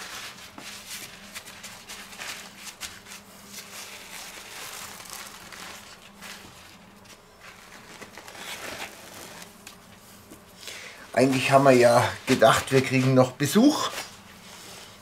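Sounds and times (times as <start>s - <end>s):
paper towels rustling: 0.0s - 15.0s.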